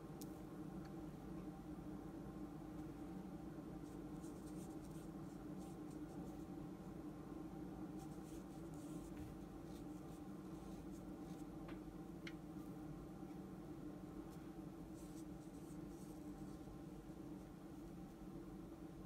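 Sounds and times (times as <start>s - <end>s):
brush pen scratching on paper: 3.8s - 6.4s.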